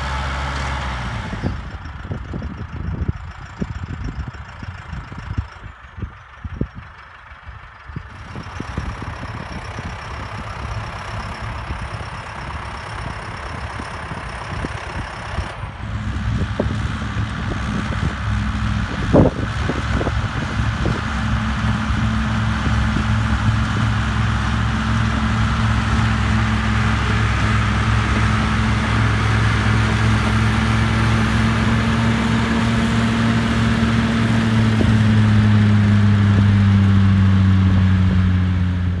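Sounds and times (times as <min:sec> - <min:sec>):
diesel tractor engine running: 0:00.0 - 0:39.0
forage harvester cutting grass: 0:14.8 - 0:38.2.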